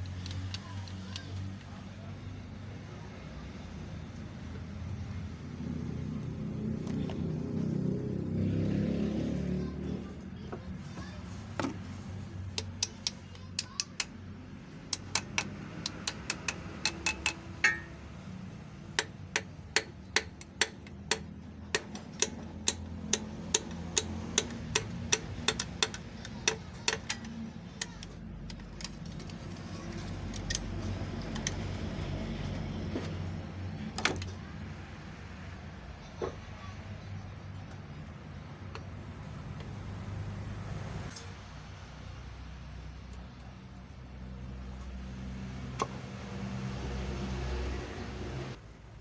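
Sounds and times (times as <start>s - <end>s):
hammer handle tapping piston: 12.5s - 14.2s, 14.9s - 18.0s, 18.9s - 28.1s.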